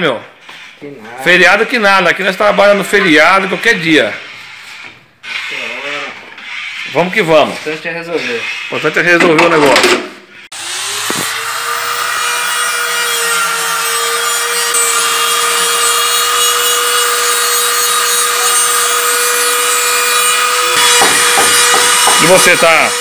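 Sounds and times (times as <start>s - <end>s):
angle grinder running: 10.5s - 23.0s.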